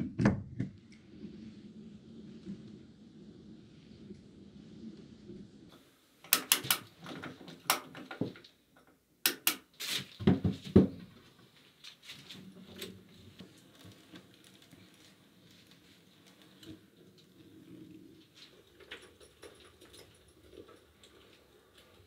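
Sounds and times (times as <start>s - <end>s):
wooden knocks and clicks: 6.3s - 9.6s.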